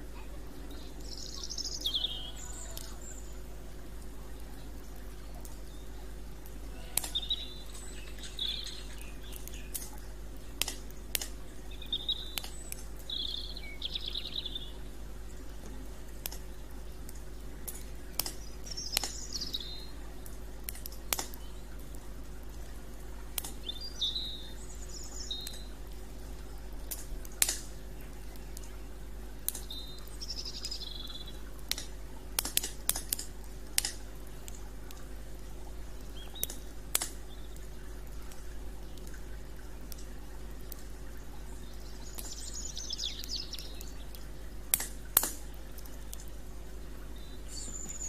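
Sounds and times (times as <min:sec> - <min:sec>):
campfire crackling: 0:00.0 - 0:48.0
bird chirping: 0:00.2 - 0:03.4, 0:06.8 - 0:09.8, 0:11.7 - 0:14.8, 0:18.4 - 0:20.0, 0:23.6 - 0:25.8, 0:29.6 - 0:31.4, 0:41.4 - 0:44.1, 0:47.1 - 0:48.0.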